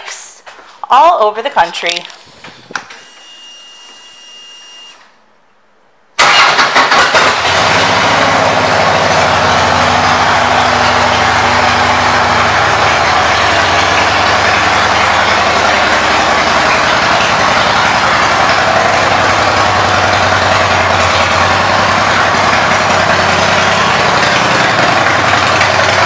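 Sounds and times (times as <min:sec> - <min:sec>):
motorcycle engine starting and idling: 0:06.2 - 0:26.0.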